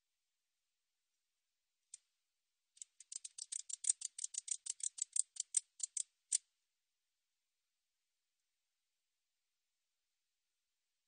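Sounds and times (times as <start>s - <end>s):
katydid ticking: 2.8s - 6.4s.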